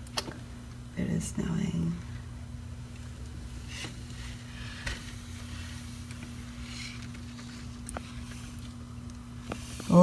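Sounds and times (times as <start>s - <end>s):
faint even hum: 0.0s - 10.0s.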